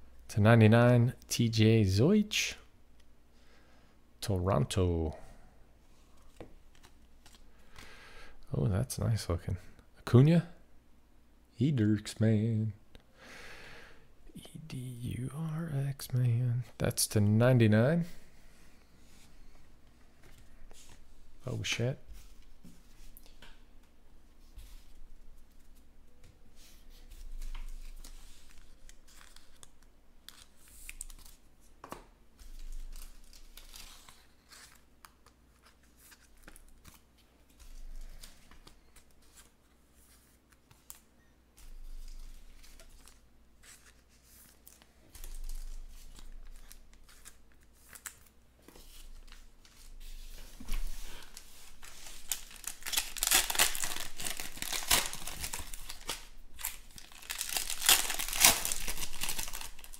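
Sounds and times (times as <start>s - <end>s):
trading cards rustling: 41.6s - 59.9s
foil pack tearing and crinkling: 51.8s - 59.9s.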